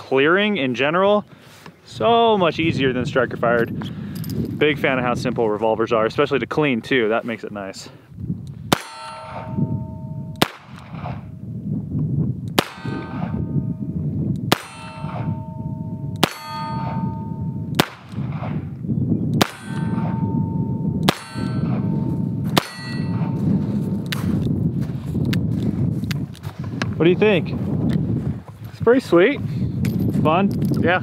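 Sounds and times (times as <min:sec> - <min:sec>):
steel target ringing ding: 0:08.8 - 0:10.4, 0:12.6 - 0:17.7, 0:19.4 - 0:23.6.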